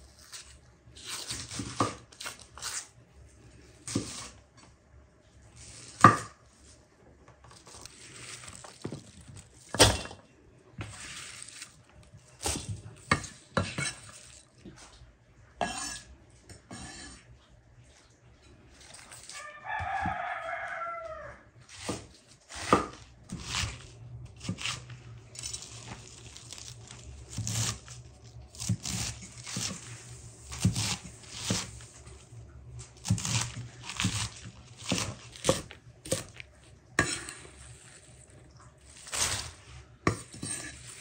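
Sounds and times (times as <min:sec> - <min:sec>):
knife crunching through cabbage: 0:00.0 - 0:03.0, 0:07.5 - 0:10.1, 0:10.8 - 0:14.6, 0:21.6 - 0:41.0
rooster crowing: 0:19.2 - 0:21.6.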